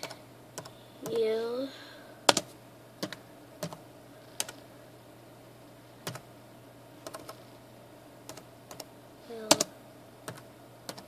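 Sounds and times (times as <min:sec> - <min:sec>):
computer keyboard typing: 0:00.0 - 0:01.2, 0:02.3 - 0:03.8, 0:04.4 - 0:04.6, 0:06.0 - 0:06.2, 0:07.0 - 0:07.4, 0:08.3 - 0:11.0.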